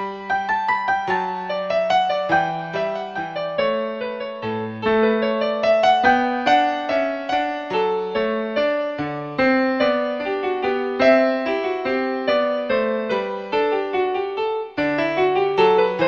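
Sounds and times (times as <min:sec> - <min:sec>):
calm piano melody: 0:00.0 - 0:16.0.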